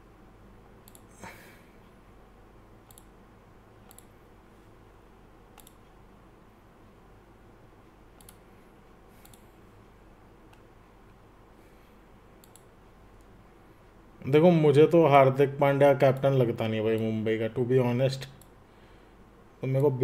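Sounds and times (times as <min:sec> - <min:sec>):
low room hum: 0:00.0 - 0:20.0
computer clicks: 0:00.8 - 0:01.2, 0:02.8 - 0:03.2, 0:03.9 - 0:04.2, 0:05.5 - 0:06.0, 0:08.2 - 0:08.5, 0:09.2 - 0:09.5, 0:12.4 - 0:13.3.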